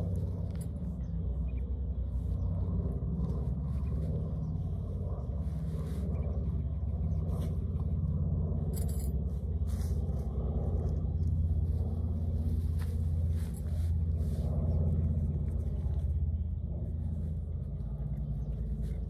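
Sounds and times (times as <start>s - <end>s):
low engine-like rumble: 0.0s - 19.0s
tent fabric rustling and clicks: 12.2s - 14.4s.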